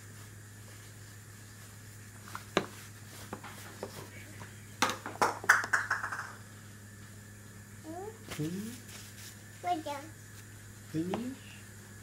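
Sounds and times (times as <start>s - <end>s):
plastic bowls knocking: 4.8s - 6.3s.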